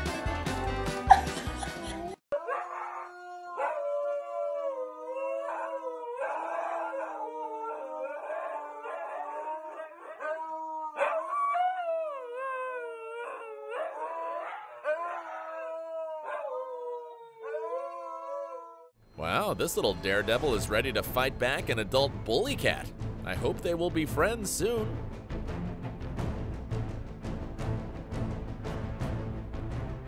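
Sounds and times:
huskies howling: 2.3 - 20.9.

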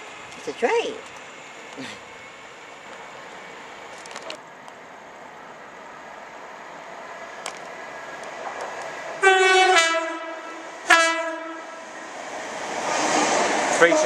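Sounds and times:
train approaching: 0.0 - 14.0
two-tone train horn: 9.2 - 11.9.

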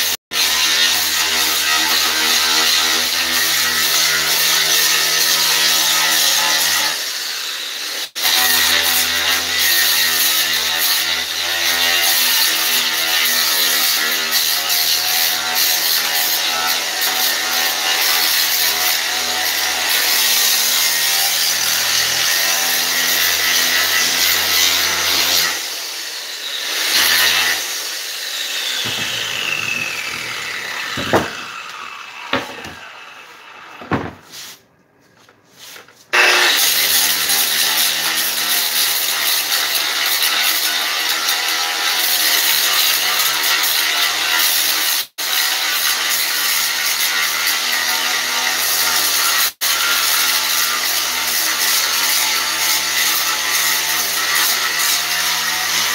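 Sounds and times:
angle grinder grinding: 0.0 - 34.6, 35.6 - 55.9
knocks: 30.9 - 31.6, 33.8 - 34.3.

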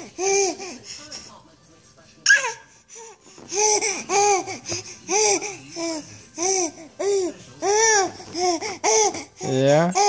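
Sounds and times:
baby babbling: 3.5 - 9.3.

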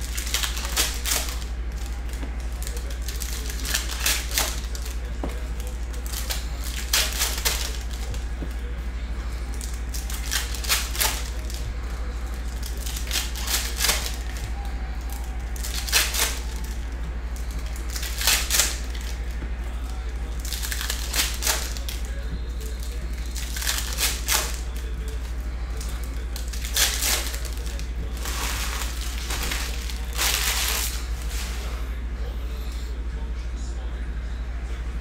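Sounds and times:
foil wrappers tearing and crinkling: 0.0 - 31.8
steady low hum: 0.0 - 35.0.

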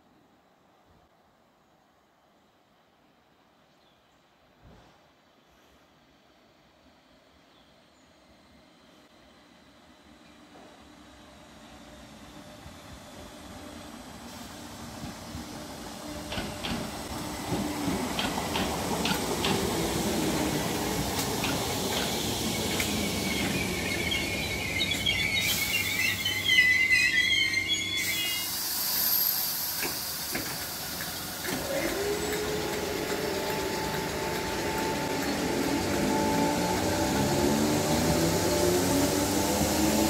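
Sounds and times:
train rumbling: 6.0 - 40.0
brakes squealing: 16.3 - 40.0
traction motor whine: 29.8 - 40.0.

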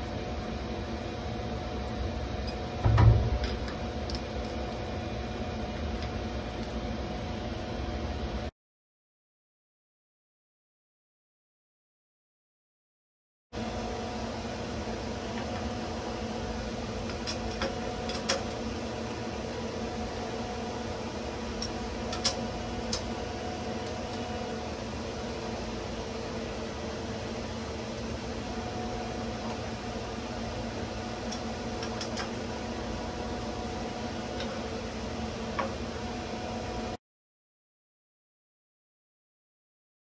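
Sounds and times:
steady machine hum: 0.0 - 8.5, 13.6 - 37.0.

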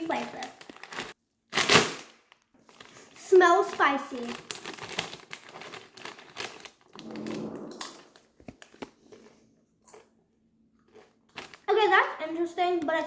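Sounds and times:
foil chip bag crinkling: 0.0 - 7.2, 10.9 - 11.9
chip crunching: 3.7 - 6.9, 10.8 - 11.7.

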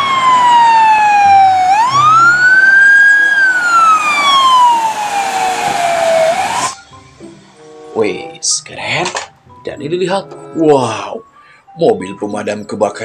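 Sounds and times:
emergency siren wailing: 0.0 - 6.8.

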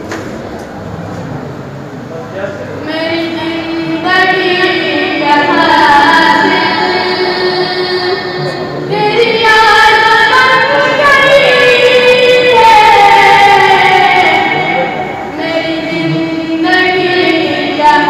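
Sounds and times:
boy singing into a microphone: 2.8 - 18.0.

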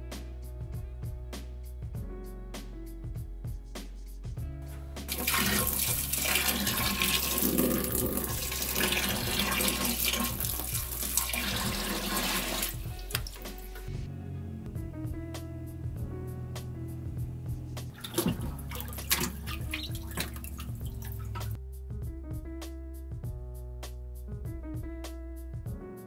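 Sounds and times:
background music: 0.0 - 26.0
water pouring and splashing: 5.1 - 13.9, 17.9 - 21.6.

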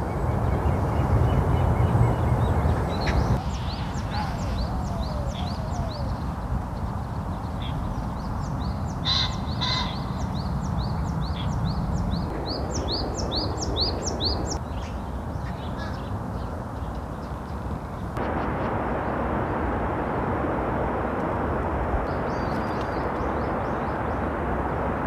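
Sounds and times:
bird chirping: 0.0 - 18.1
harsh cawing calls: 9.0 - 10.1
low background rumble: 17.9 - 25.0.

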